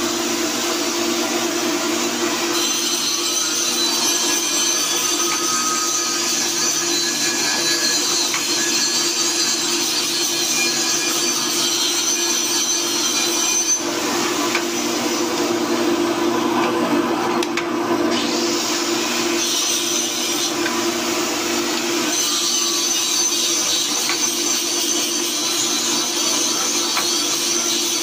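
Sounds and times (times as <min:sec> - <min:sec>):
drill bit grinding metal: 0:00.1 - 0:16.5, 0:17.5 - 0:28.0.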